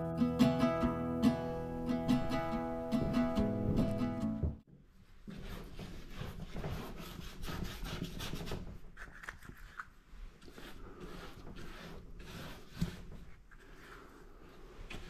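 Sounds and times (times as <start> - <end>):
paintbrush scrubbing paper: 5.2 - 15.0.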